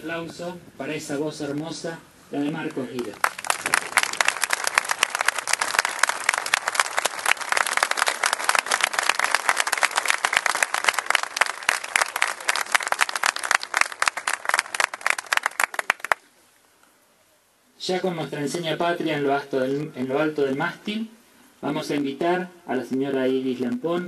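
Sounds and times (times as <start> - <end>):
crowd applauding: 2.9 - 16.2.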